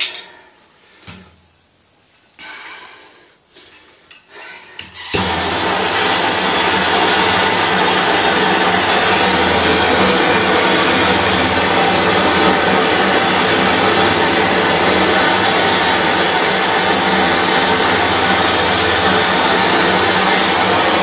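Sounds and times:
gas torch hissing: 4.8 - 21.0.

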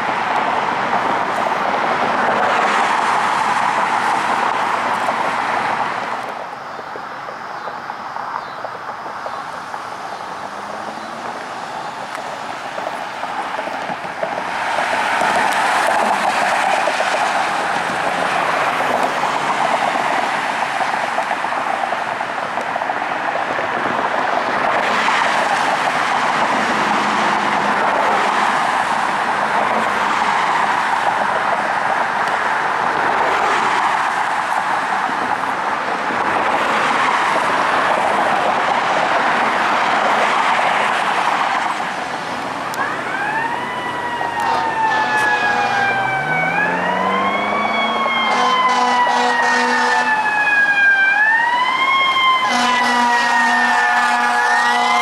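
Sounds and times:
road traffic rushing: 0.0 - 55.0
fire truck siren wailing: 10.2 - 55.0
air horn blasts: 44.3 - 46.9, 48.2 - 50.2, 52.4 - 55.0.

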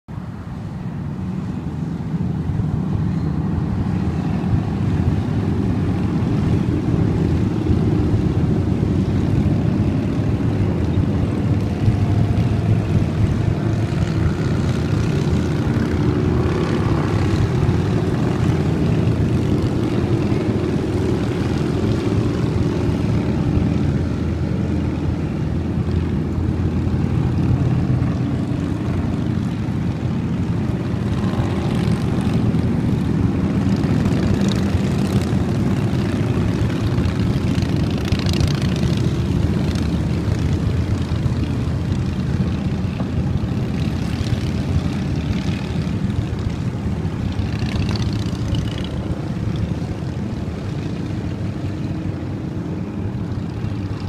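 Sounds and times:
motorcycles passing: 0.1 - 54.0.

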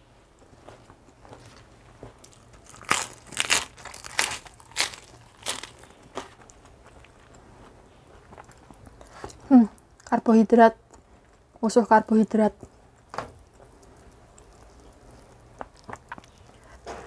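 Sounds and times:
lettuce being chewed crunching: 1.0 - 10.1, 12.6 - 16.9.

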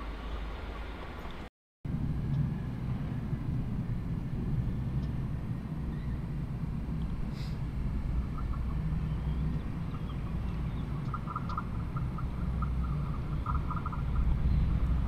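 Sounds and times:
low rumble: 0.0 - 15.0
bird chattering: 8.2 - 14.7.

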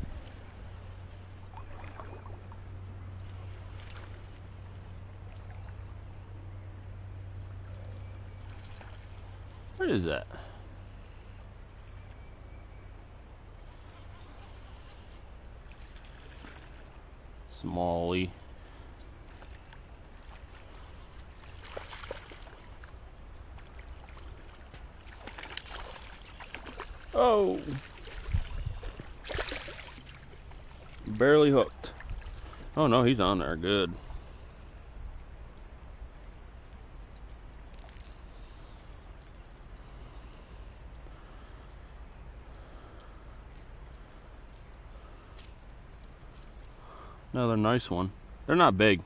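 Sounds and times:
wind hiss: 0.0 - 5.2, 13.0 - 48.6
wind rumble on microphone: 0.0 - 6.2, 27.7 - 31.1
moving water: 0.0 - 12.4, 13.2 - 49.0
faint clicks: 40.7 - 46.8.

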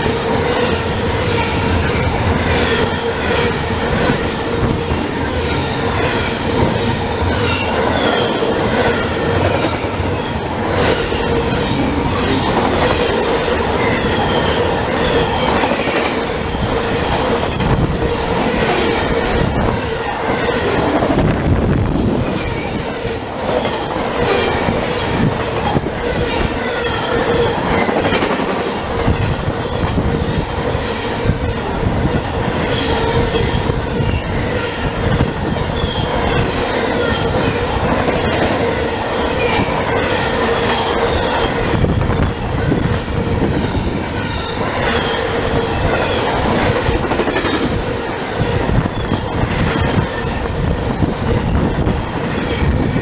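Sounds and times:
freight train wheels clattering: 0.0 - 53.0
wind rushing off train cars: 0.0 - 53.0
wheel squeals: 0.5 - 17.7, 32.6 - 42.8, 43.6 - 47.7, 48.4 - 50.6.

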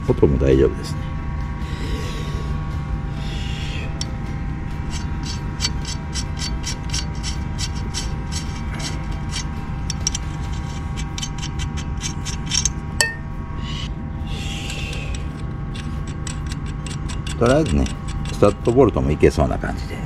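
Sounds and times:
steady low hum: 0.0 - 20.0
turbocharger clicking: 4.0 - 4.2, 4.8 - 13.2, 14.6 - 19.0.

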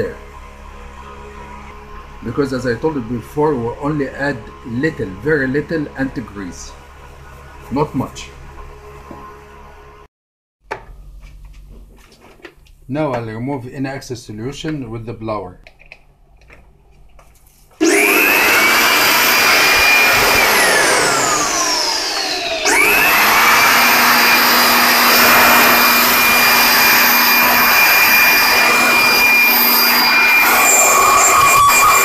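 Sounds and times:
electric air blower motor whine: 0.0 - 10.1, 17.8 - 32.0.

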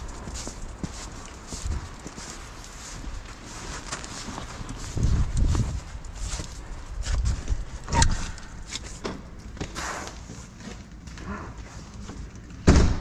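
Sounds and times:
footsteps and knocks: 0.0 - 13.0
loud thump: 12.6 - 13.0.

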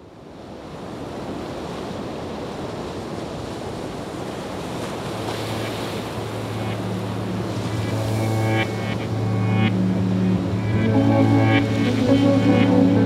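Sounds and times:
sea waves rushing: 0.7 - 13.0
low music drone: 5.6 - 13.0
higher music note: 7.6 - 13.0.

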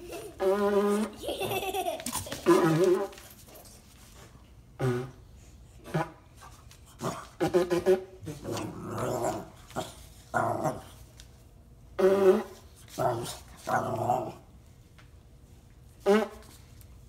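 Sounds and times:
dog growling and barking: 7.0 - 11.0, 12.1 - 14.5
honking blows through cardboard tube: 16.0 - 16.6.

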